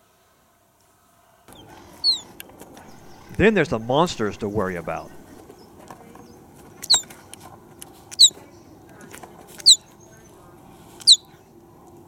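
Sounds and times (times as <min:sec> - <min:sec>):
faint steady background: 0:02.8 - 0:05.4.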